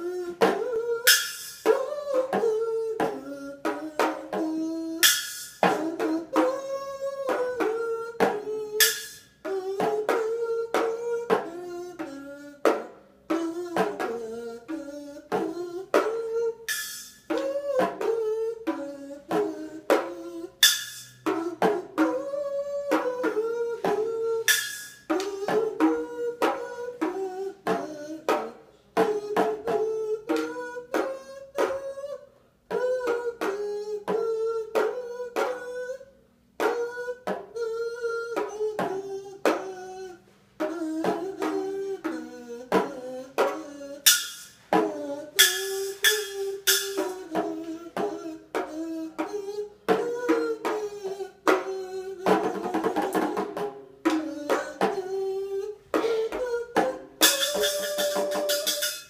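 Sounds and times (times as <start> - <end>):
toy drum kit tapping: 0.0 - 2.4, 3.0 - 6.7, 7.3 - 11.5, 15.4 - 22.2, 23.0 - 31.8, 40.6 - 50.8, 51.4 - 55.1, 56.0 - 59.0
kazoo buzzing a melody: 0.0 - 12.7, 13.4 - 53.2, 54.3 - 59.0.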